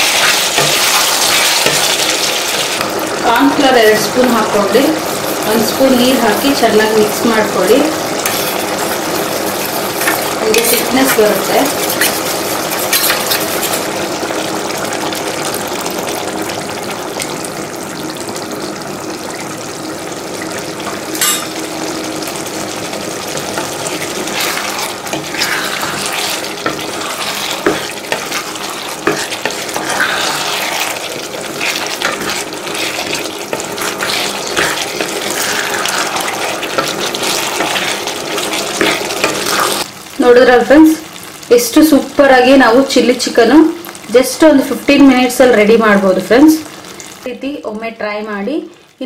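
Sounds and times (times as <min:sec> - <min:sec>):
wooden spatula scraping wok: 0:00.0 - 0:14.0, 0:23.2 - 0:39.9
gravy simmering and sizzling: 0:00.0 - 0:47.6.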